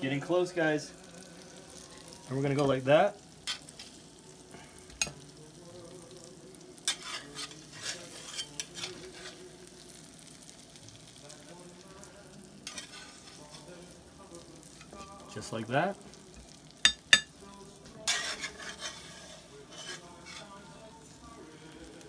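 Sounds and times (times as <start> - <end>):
faint pan sizzle: 0.0 - 22.0
metal spatula scraping skillet: 3.4 - 4.0, 6.8 - 9.9, 12.6 - 14.0, 17.9 - 22.0.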